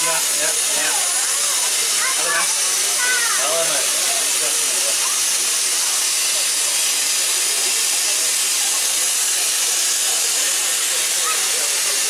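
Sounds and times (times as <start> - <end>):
steam hissing: 0.0 - 12.0.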